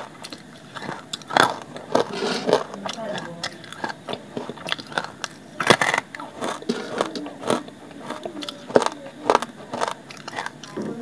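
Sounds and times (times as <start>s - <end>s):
dry clay crunched by teeth: 0.2s - 10.8s.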